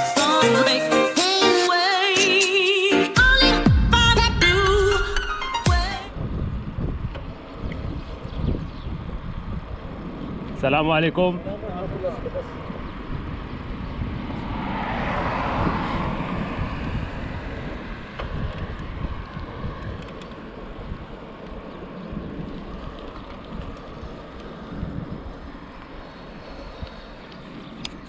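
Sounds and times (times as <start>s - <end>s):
wind buffeting microphone: 6.0s - 28.0s
bicycle tyres on paved road: 6.1s - 28.0s.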